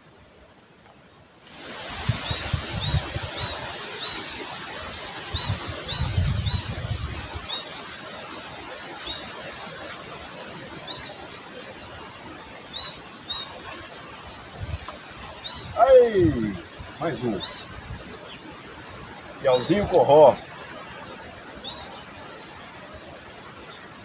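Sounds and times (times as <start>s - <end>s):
wind buffeting microphone: 1.8s - 3.8s, 5.2s - 7.6s, 14.4s - 20.0s
bird chirping: 10.8s - 11.9s, 12.6s - 14.3s, 15.1s - 18.5s.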